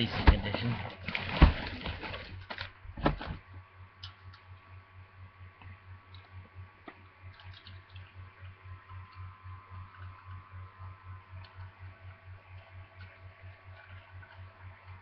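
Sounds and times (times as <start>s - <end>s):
packaging rustling: 0.0s - 2.8s
low pulsing hum: 0.0s - 15.0s
cardboard box knock: 1.3s - 1.7s.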